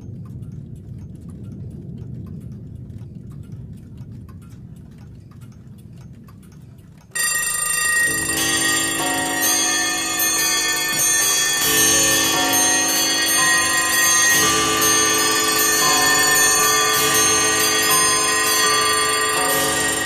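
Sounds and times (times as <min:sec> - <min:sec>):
many clocks ticking: 0:00.0 - 0:20.0
alarm clocks and chimes ringing: 0:07.1 - 0:20.0.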